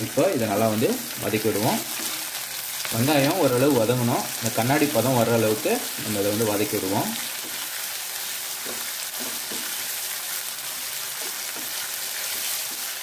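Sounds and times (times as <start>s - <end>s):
vegetables sizzling in hot oil: 0.0s - 13.0s
spatula scraping pan: 8.5s - 10.1s.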